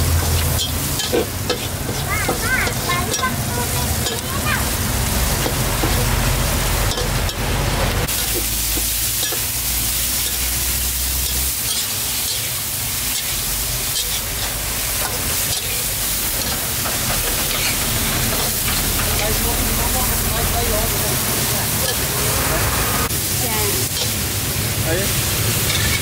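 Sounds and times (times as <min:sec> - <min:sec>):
food sizzling: 0:00.0 - 0:26.0.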